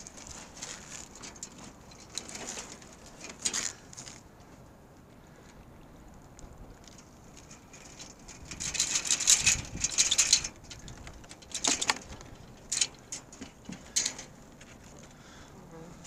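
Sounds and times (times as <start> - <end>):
wire crab ring rattling on planks: 0.0 - 4.2, 6.8 - 15.2.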